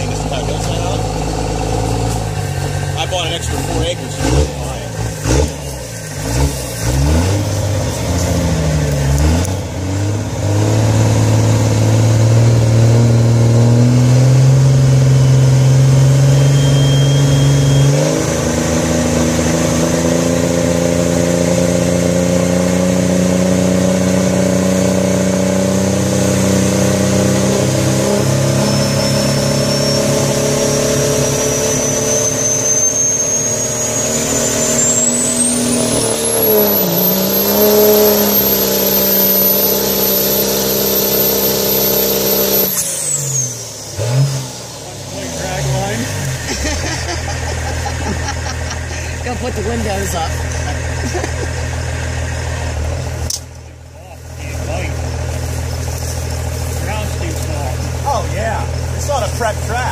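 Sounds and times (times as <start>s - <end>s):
vehicle engine under load: 0.0s - 59.9s
thin high whine: 15.2s - 18.2s.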